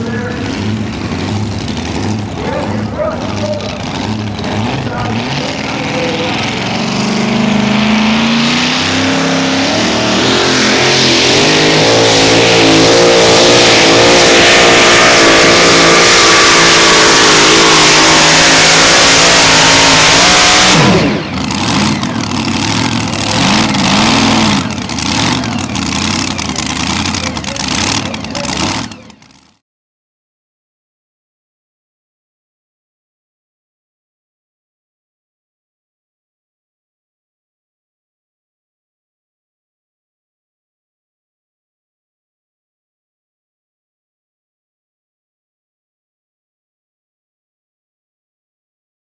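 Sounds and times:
truck engine at full throttle: 0.0 - 29.6.

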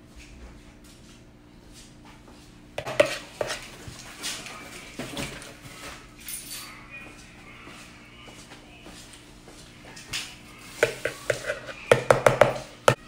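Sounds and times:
metal spoon clinking and scraping: 2.8 - 3.7, 10.8 - 12.1.

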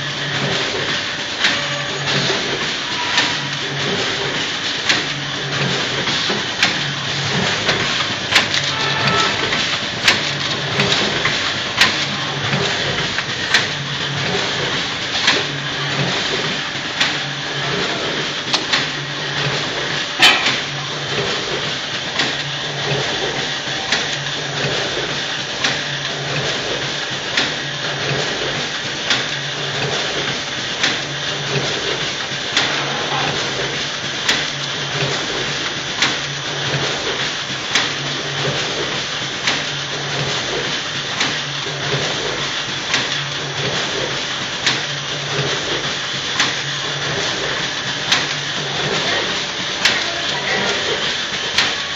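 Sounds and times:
packing machine humming: 0.0 - 51.9
machine clacking: 0.3 - 51.9.

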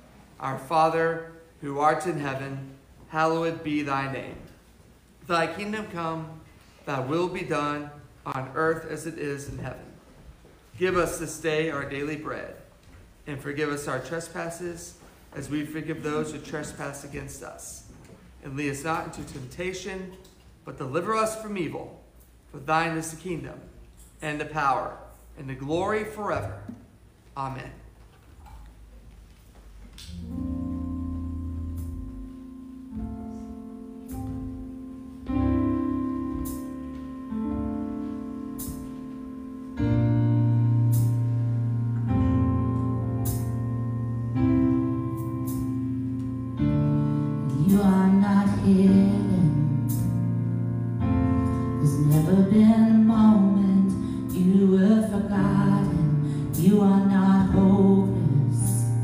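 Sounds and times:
person singing melody: 30.0 - 38.0, 46.0 - 59.0
keyboard playing sustained chords: 30.0 - 59.0.

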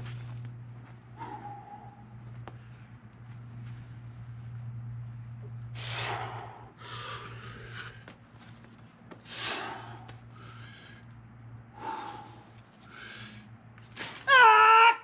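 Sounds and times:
person breathing out hard: 5.8 - 8.0, 9.2 - 11.1, 11.7 - 13.5.

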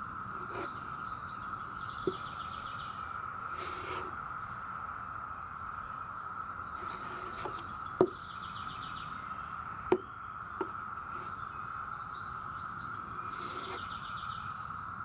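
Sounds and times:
birds chirping: 0.0 - 15.0
high outdoor drone: 0.0 - 15.0
putty knife scraping wood: 0.4 - 0.8, 3.5 - 4.2, 6.8 - 8.1, 13.3 - 13.8.

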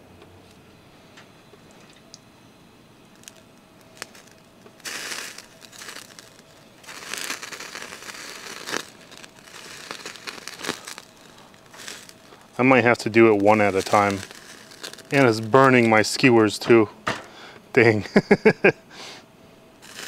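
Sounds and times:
fish sizzling and crackling: 3.1 - 16.5, 19.8 - 20.0.

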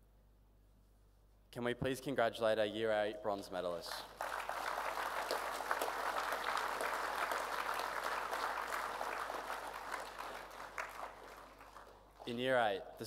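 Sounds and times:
audience applauding: 4.0 - 12.4.

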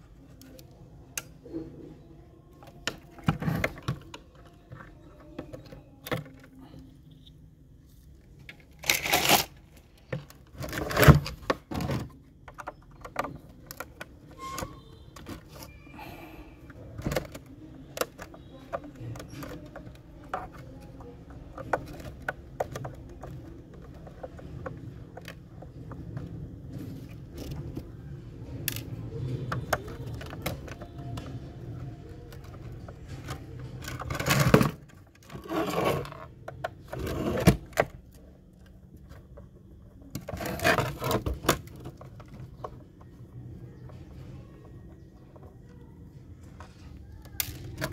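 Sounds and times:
plastic clattering handling noise: 0.1 - 47.9
plastic toy clicks and scrapes: 8.3 - 45.7.

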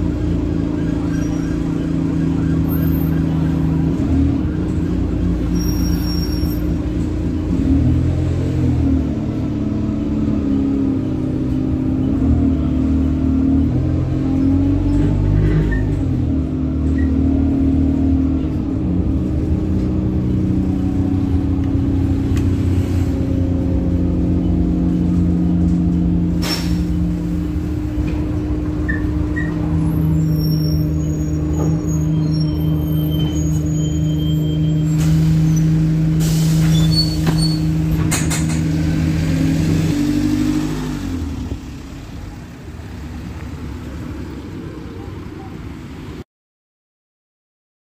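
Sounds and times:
bus engine drone: 0.0 - 46.3
air brakes hissing: 26.4 - 27.5, 30.8 - 37.9.

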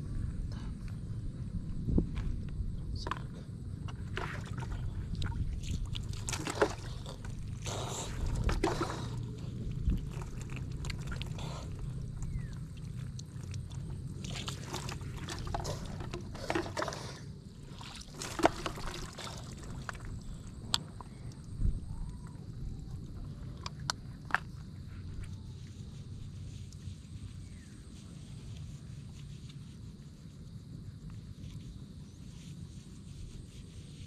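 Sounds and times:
water pouring and splashing: 4.0 - 11.4, 12.5 - 20.5.

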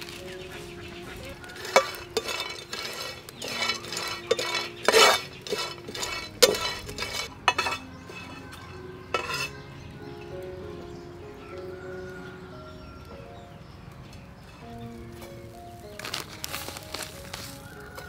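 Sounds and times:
metal spoon scraping a wok: 1.4 - 9.6.

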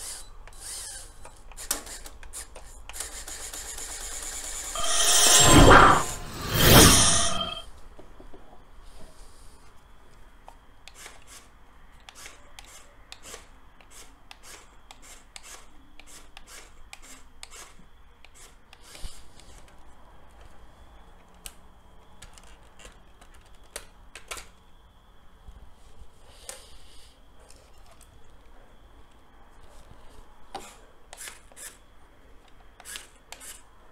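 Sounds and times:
plastic parts clicking and rattling: 22.2 - 24.6.

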